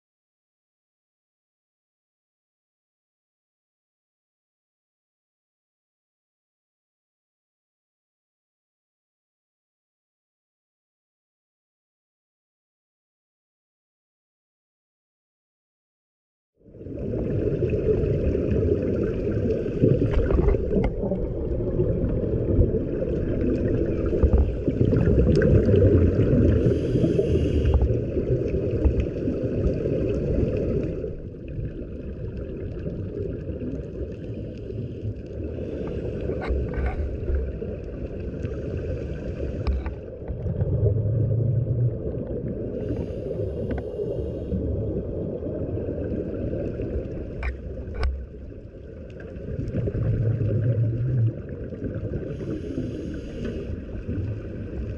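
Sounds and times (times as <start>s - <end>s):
underwater exhaust bubbles rumbling: 16.6s - 54.9s
regulator inhalation hiss: 26.6s - 27.9s, 52.4s - 53.8s.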